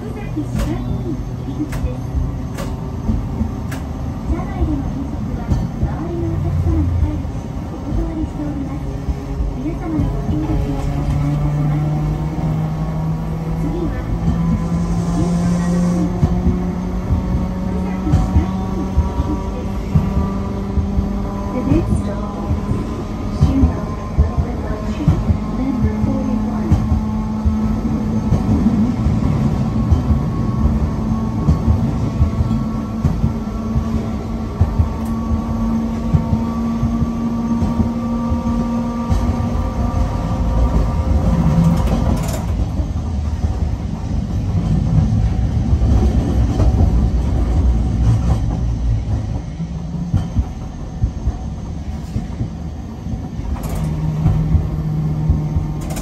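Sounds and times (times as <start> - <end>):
wheels rumbling on rails: 0.0 - 56.0.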